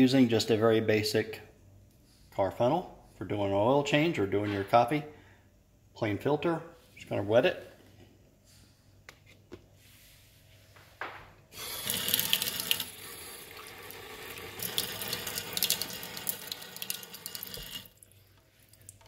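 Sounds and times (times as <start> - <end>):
faucet running into sink: 11.6 - 19.0.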